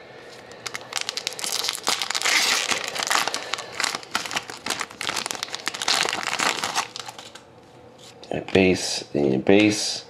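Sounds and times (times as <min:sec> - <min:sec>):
foil wrapper crinkling: 0:00.5 - 0:07.4.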